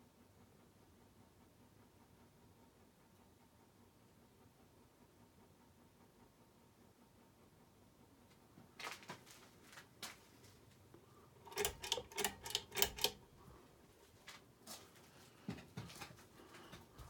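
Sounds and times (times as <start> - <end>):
ceiling fan pull-chain clicking: 11.4 - 13.6.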